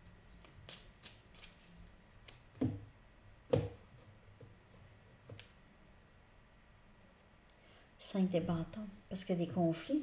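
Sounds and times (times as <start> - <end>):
cards knocking on wooden table: 2.6 - 2.9.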